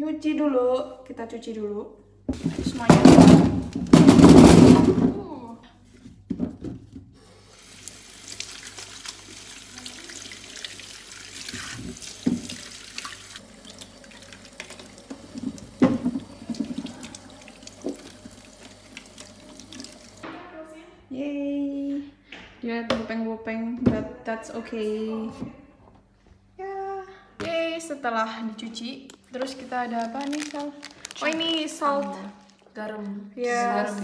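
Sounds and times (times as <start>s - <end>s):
apples knocking against sink: 2.3s - 5.2s, 11.5s - 12.7s, 14.6s - 20.2s
tap running into steel sink: 11.5s - 12.7s, 14.5s - 20.2s.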